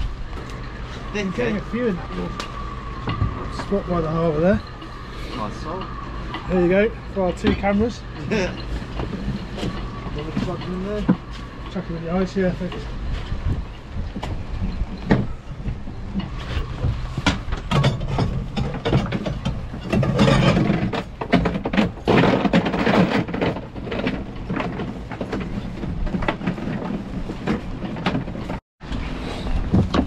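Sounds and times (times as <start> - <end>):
fishing gear clattering on deck: 17.1 - 28.6.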